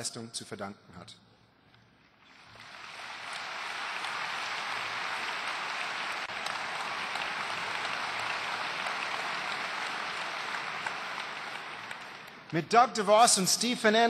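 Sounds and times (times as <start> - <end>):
large audience applauding: 2.2 - 13.3.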